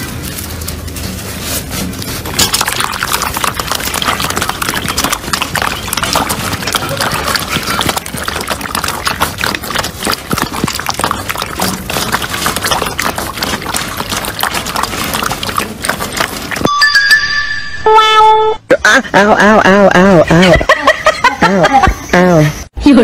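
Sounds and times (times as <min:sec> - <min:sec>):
puppies lapping and chewing food: 0:00.0 - 0:16.7.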